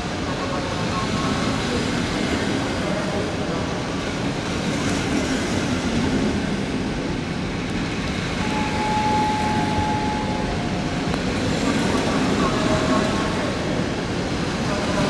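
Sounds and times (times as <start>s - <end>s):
train wheels rumbling on rails: 0.0s - 15.0s
high squeal: 8.4s - 11.1s.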